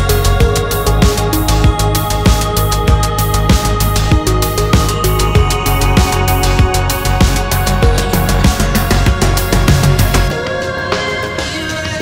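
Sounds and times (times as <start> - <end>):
electronic music with drum beat: 0.0 - 12.0.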